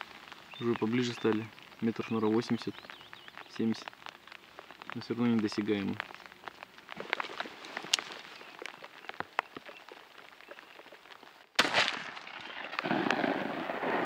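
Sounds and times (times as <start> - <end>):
rain dripping: 0.0 - 14.0
loud shotgun shot: 11.6 - 14.0.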